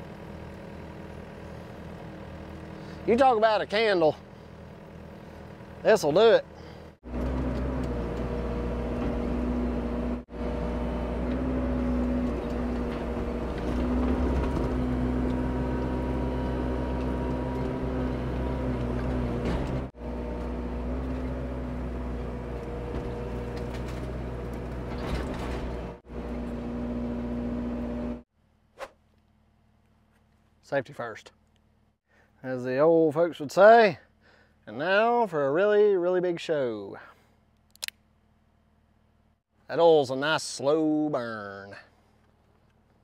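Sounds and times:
engine humming with wavering tone: 0:00.0 - 0:30.7.

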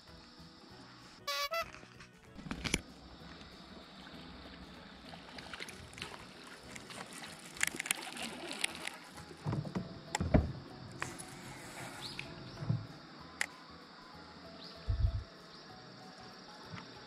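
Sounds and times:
steady hiss: 0:02.6 - 0:17.0
water lapping against boat: 0:03.7 - 0:09.9.

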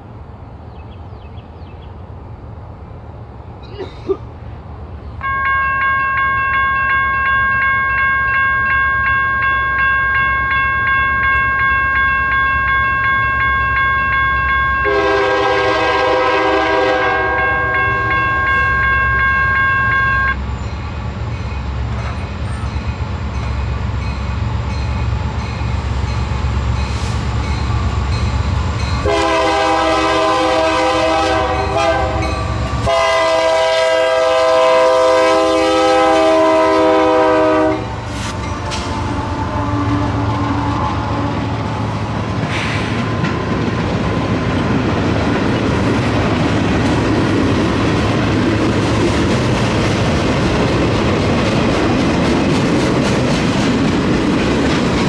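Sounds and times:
steady high ringing tone: 0:05.2 - 0:15.2, 0:17.3 - 0:29.1
train air horn blasts: 0:14.8 - 0:20.4, 0:29.0 - 0:41.7.

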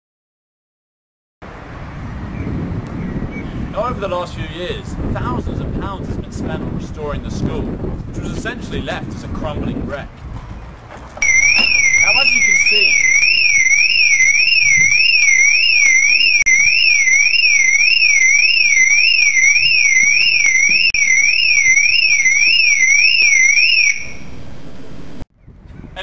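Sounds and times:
electronic alarm warbling: 0:11.2 - 0:24.4.

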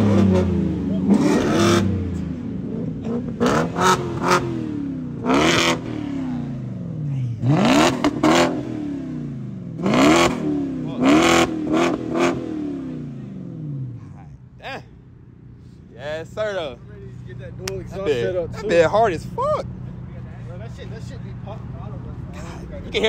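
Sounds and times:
turbocharged car engine revving: 0:00.0 - 0:14.0.

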